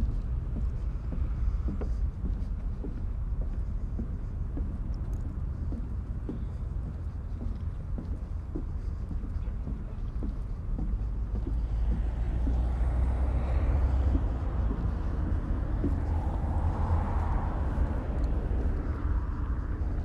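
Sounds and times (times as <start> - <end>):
distant traffic: 0.0 - 20.0
footsteps ticking faintly: 0.0 - 20.0
wind buffeting microphone: 0.0 - 20.0
vehicle passing: 11.2 - 20.0.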